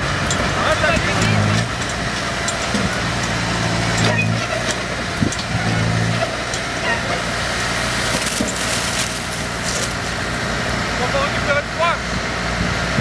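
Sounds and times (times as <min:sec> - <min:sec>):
tractor engine humming: 0:00.0 - 0:13.0
manure sliding onto ground: 0:07.3 - 0:10.3.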